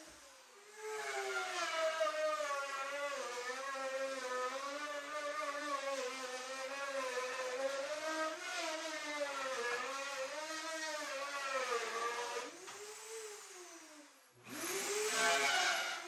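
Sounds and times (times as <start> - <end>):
router motor whine cutting wood: 14.4 - 16.0.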